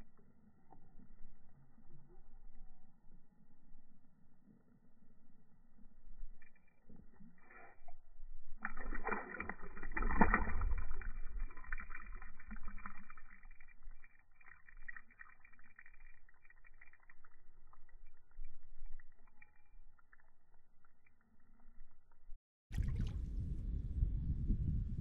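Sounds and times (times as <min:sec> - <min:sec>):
fish splashing in water: 0:06.5 - 0:20.5, 0:22.7 - 0:23.3
water dripping: 0:08.6 - 0:23.1.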